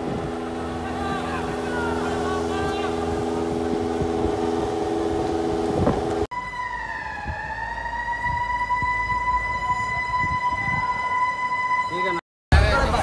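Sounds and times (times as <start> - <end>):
droning hum with noise: 0.0 - 6.3
emergency siren steady tone: 0.0 - 12.2.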